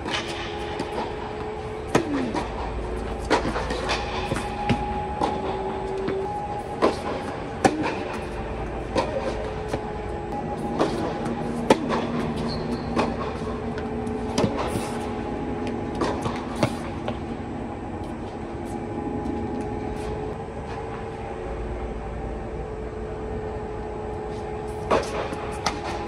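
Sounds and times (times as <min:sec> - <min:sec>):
machine hum: 0:00.0 - 0:26.0
tennis balls struck by racquets: 0:01.9 - 0:05.4, 0:06.8 - 0:17.2.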